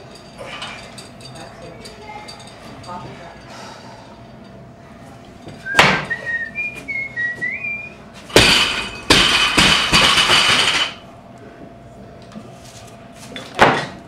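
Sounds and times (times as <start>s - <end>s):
person whistling a tune: 5.6s - 8.0s
rattling clattering with sharp knocks: 8.3s - 11.0s.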